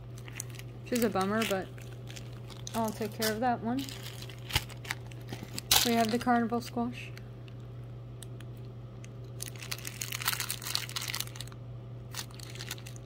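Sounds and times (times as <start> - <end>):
plastic bag crinkling: 0.0 - 6.7, 9.2 - 13.0
seeds rattling in plastic: 9.4 - 13.0.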